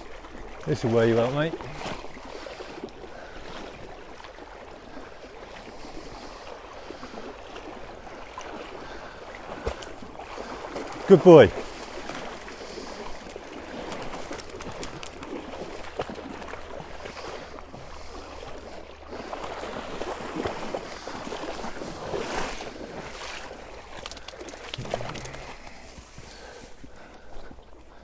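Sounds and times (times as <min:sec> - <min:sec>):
river water sloshing and splashing: 0:00.0 - 0:28.0.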